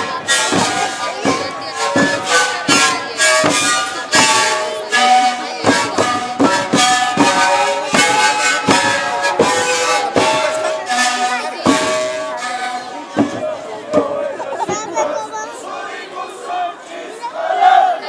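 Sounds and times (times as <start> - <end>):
panpipes playing melody: 0.0 - 13.7
steady drum beat: 0.0 - 15.4.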